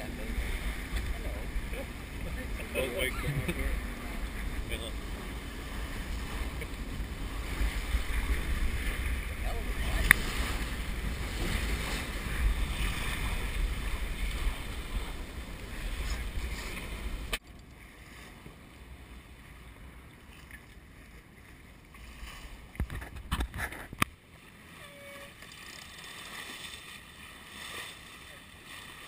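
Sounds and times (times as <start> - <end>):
wind buffeting microphone: 0.0 - 17.4
water rushing past hull: 0.0 - 29.0.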